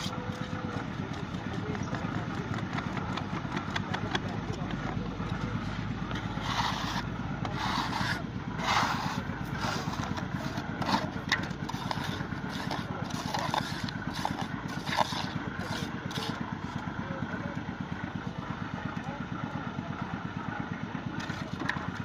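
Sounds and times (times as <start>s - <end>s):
trowel scraping concrete mix: 0.0s - 16.9s
small engine idling: 0.0s - 22.0s.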